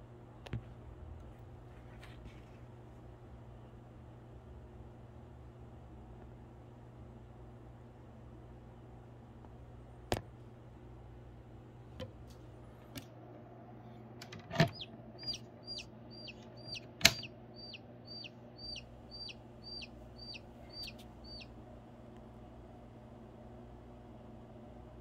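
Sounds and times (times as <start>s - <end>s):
chick distress peeps: 14.7s - 21.5s.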